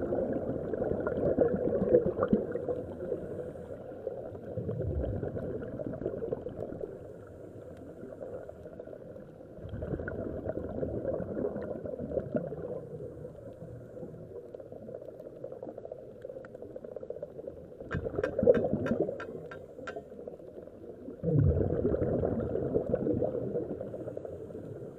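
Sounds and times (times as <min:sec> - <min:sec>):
diver's bubbles gurgling: 0:00.0 - 0:03.4, 0:04.0 - 0:07.1, 0:08.0 - 0:24.9
sharp clicks: 0:17.9 - 0:20.1.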